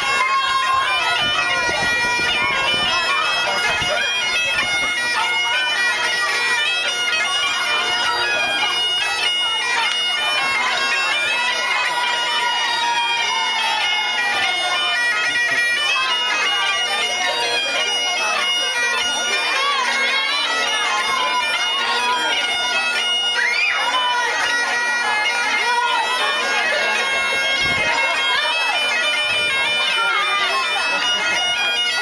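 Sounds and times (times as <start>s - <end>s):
bagpipes playing dance tune: 0.0s - 32.0s.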